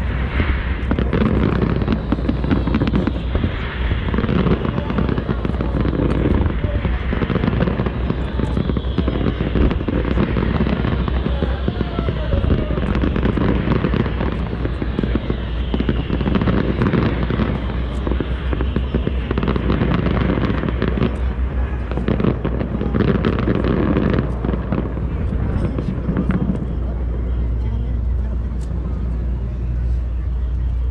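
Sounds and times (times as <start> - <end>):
fireworks bangs and crackles: 0.0 - 30.9.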